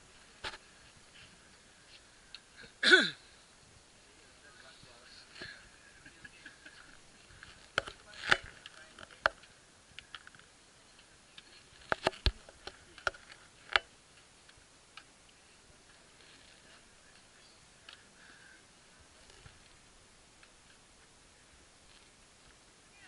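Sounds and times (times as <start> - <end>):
trekking poles clicking on rock: 6.8 - 15.1.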